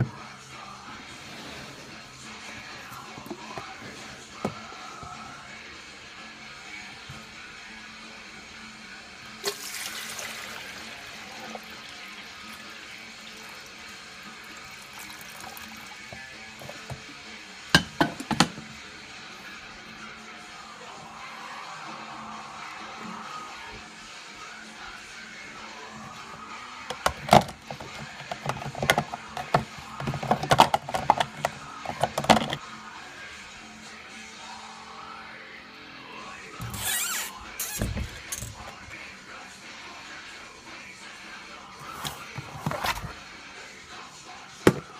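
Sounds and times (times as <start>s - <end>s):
water pouring: 9.4s - 16.0s
plastic coffee maker clacks: 17.8s - 18.6s, 26.9s - 32.6s, 41.8s - 43.2s, 44.7s - 44.9s.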